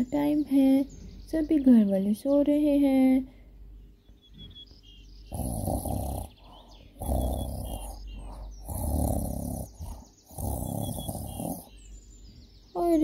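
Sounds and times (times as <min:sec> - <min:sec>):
faint bird chirps: 0:00.0 - 0:13.0
man snoring: 0:05.3 - 0:06.4, 0:07.0 - 0:11.7.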